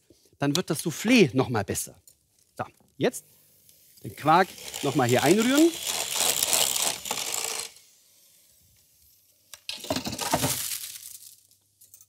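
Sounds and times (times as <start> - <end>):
electric hand mixer running: 4.3 - 7.8.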